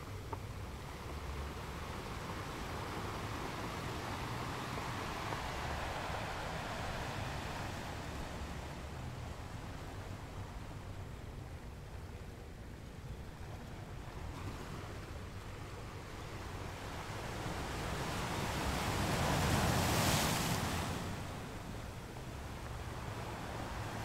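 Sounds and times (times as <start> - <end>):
ocean surf breaking: 2.0 - 10.6, 16.7 - 24.0.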